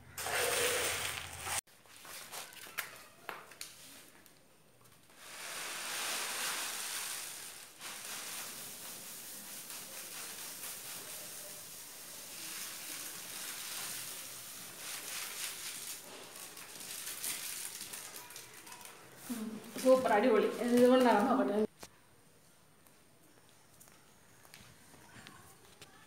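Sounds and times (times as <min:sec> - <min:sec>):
rice grains pouring: 0:00.2 - 0:01.6, 0:05.2 - 0:18.6.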